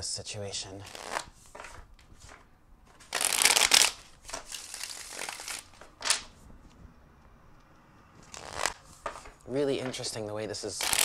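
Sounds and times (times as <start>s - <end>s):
cards shuffling: 0.8s - 6.4s, 8.2s - 10.1s, 10.8s - 11.0s
cards snapping: 0.9s - 6.3s, 8.2s - 9.3s, 10.8s - 11.0s.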